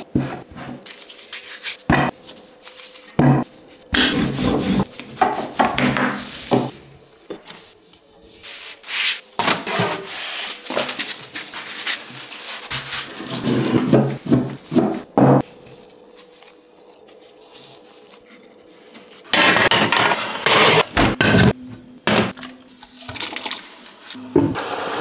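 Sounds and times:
rolling pin rolling dough: 3.2 - 6.8, 8.3 - 15.9.

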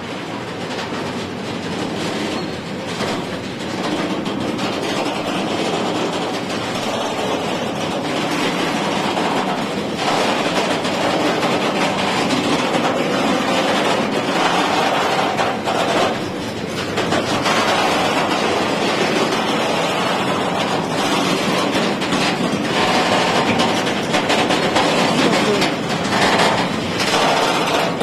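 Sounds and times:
train wheels rumbling on rails: 0.0 - 28.0.

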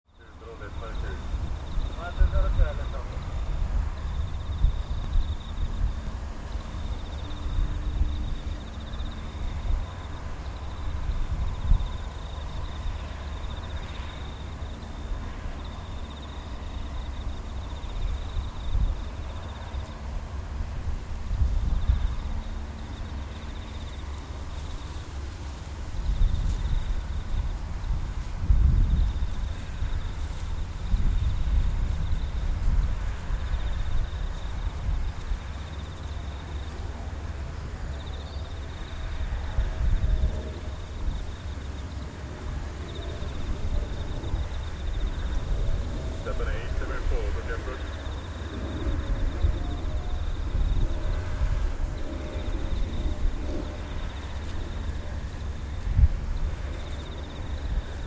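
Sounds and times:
insects trilling: 0.1 - 58.0
low rumble in gusts: 0.2 - 58.0
insect pulsing trill: 37.9 - 58.0.

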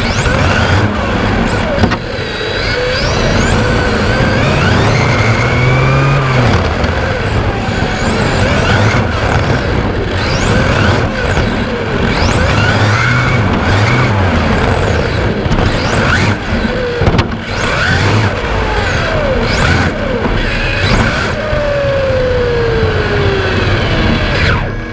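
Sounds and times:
electric motor whining: 0.0 - 24.9
wind and road noise: 0.0 - 24.9.

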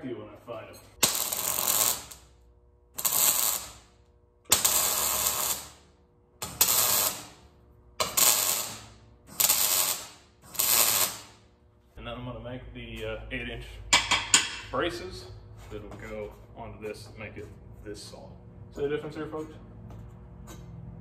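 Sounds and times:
welding arc crackle: 1.0 - 11.5.

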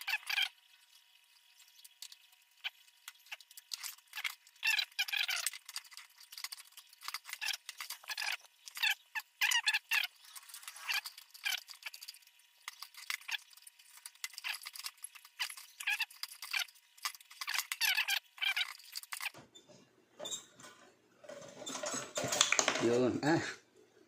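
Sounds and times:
sheet metal squeaking and scraping: 12.7 - 22.4.

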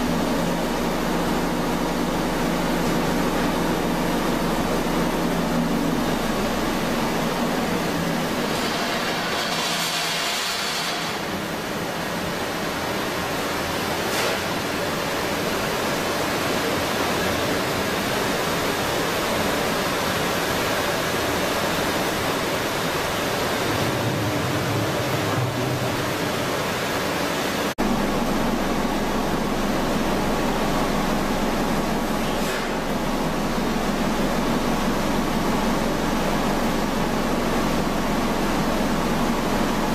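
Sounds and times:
machine rushing noise: 22.8 - 27.7.

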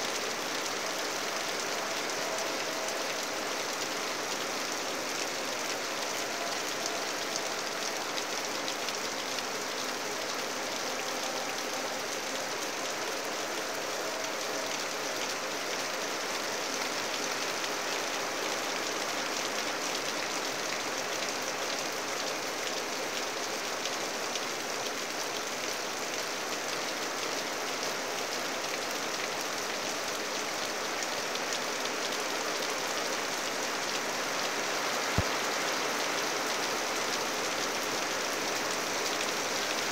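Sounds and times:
rain on foliage and water: 0.0 - 39.9.

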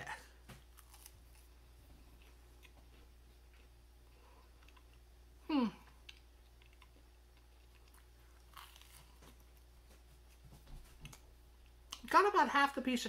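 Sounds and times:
faint chewing: 0.5 - 5.1, 5.7 - 12.1
person humming: 5.4 - 5.9.

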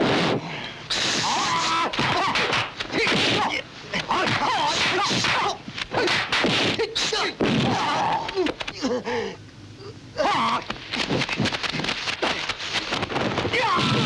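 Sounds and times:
punch and block whacks: 1.0 - 8.1
fighters shouting and grunting: 1.0 - 8.7, 13.5 - 14.0.

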